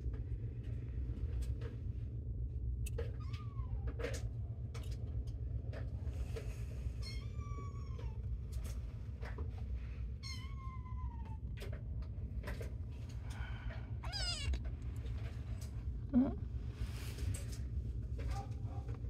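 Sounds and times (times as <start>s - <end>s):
kitten meowing: 14.0s - 14.6s.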